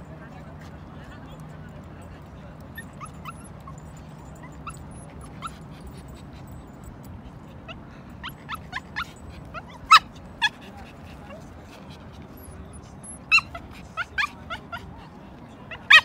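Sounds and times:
small dog whining and yipping: 0:02.7 - 0:07.0, 0:07.6 - 0:11.4, 0:12.3 - 0:14.9, 0:15.7 - 0:16.0.

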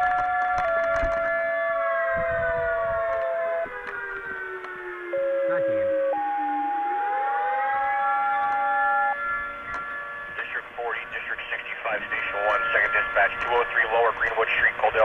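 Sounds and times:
fire siren winding: 0:00.0 - 0:10.4
radio paging tones: 0:10.4 - 0:15.0.

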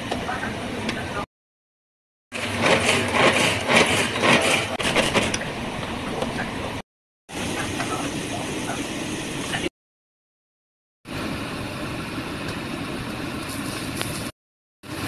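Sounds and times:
wooden spatula scraping: 0:02.4 - 0:05.3.

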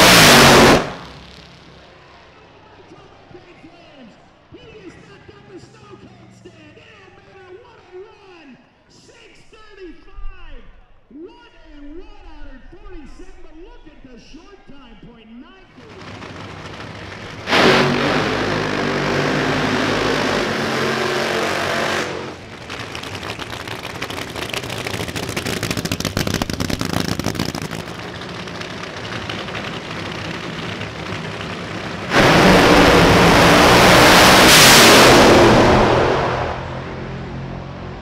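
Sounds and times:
crackling engine: 0:00.0 - 0:02.4, 0:15.7 - 0:38.0
drag racing engines at full throttle: 0:00.0 - 0:03.6, 0:15.7 - 0:38.0.

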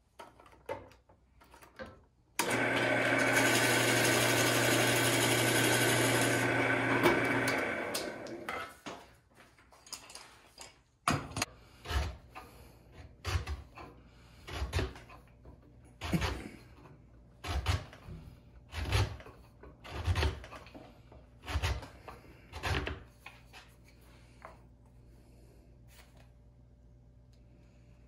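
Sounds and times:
hand tool scraping wooden block: 0:11.7 - 0:24.0.

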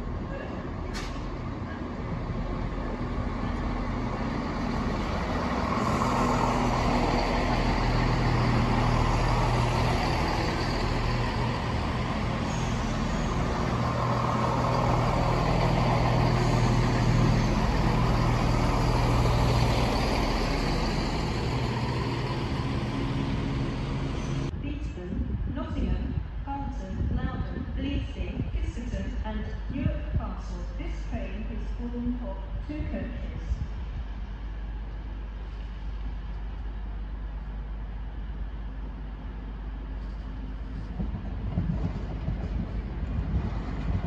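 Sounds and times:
wheel and rail noise: 0:00.0 - 0:24.5, 0:33.6 - 0:44.0
diesel train engines humming: 0:00.0 - 0:44.0.

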